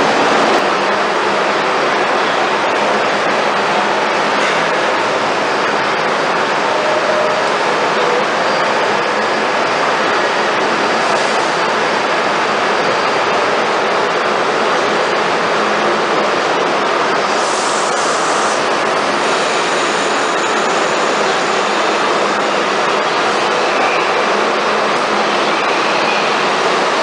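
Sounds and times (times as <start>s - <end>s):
subway trains rushing: 0.0s - 27.0s.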